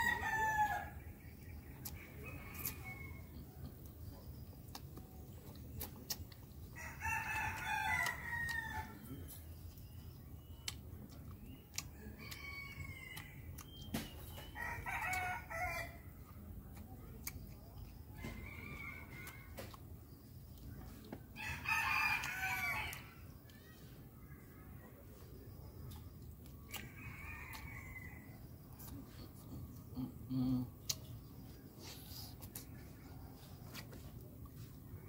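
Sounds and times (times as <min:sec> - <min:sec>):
rooster crowing: 0:00.0 - 0:01.0, 0:14.6 - 0:16.0, 0:21.4 - 0:23.1.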